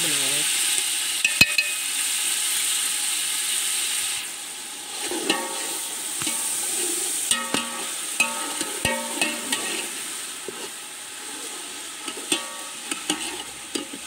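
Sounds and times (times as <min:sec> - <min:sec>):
masala sizzling in oil: 0:00.0 - 0:14.0
metal skimmer knocking on pot: 0:07.3 - 0:09.7.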